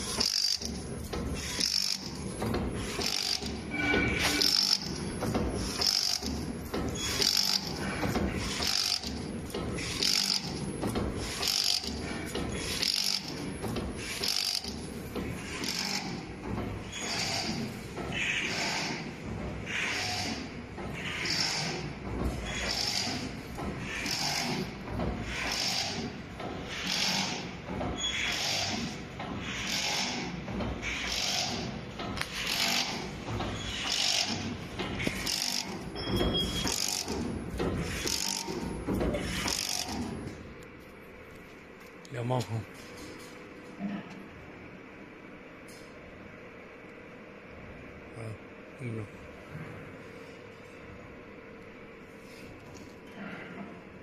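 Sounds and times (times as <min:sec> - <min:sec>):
weaving machine clattering: 0:00.0 - 0:17.8, 0:21.3 - 0:40.1.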